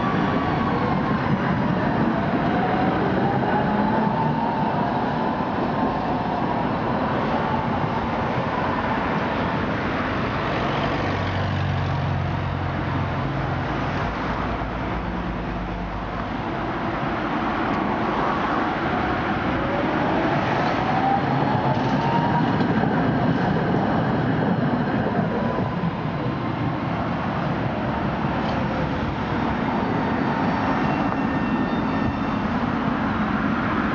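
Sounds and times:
road traffic: 0:00.0 - 0:33.9.

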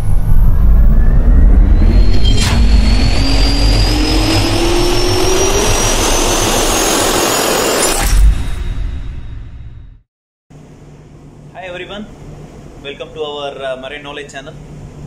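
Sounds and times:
jet turbine rising whine: 0:00.0 - 0:10.0
low rumble: 0:00.0 - 0:10.0
sharp hit: 0:00.0 - 0:10.0.

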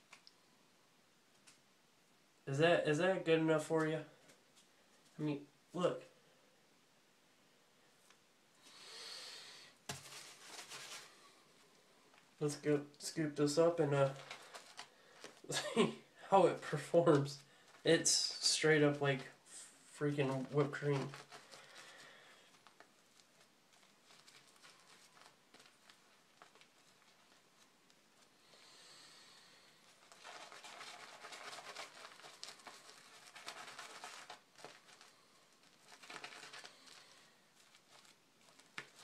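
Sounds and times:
crackling squish of soap lather: 0:20.3 - 0:28.7, 0:29.6 - 0:39.0.

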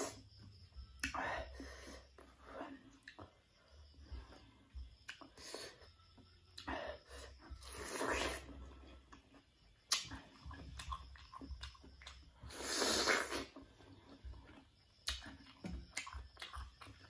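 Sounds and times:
chewing and biting: 0:07.8 - 0:17.0.

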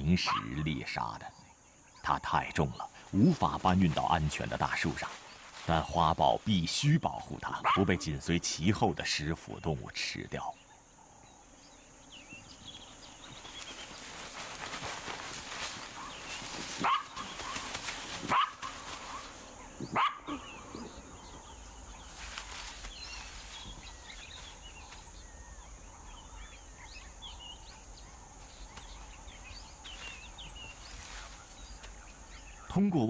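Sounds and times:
small birds chirping faintly: 0:00.0 - 0:33.0
jackal yelping: 0:07.5 - 0:08.0, 0:16.8 - 0:21.0.

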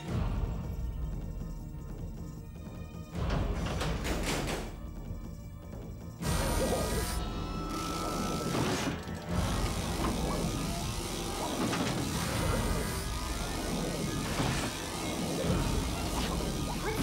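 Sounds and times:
robotic claws clattering: 0:08.4 - 0:17.0.

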